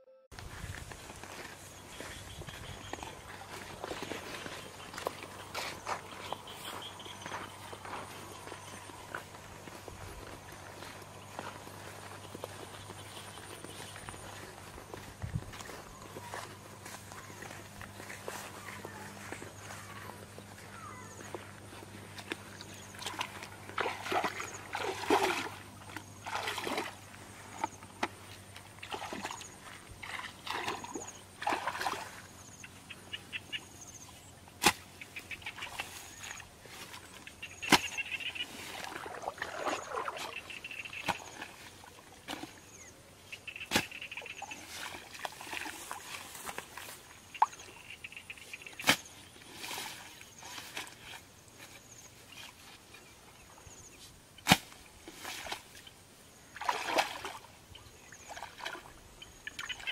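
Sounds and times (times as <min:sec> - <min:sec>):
feet wading through muddy water: 0:00.4 - 0:59.9.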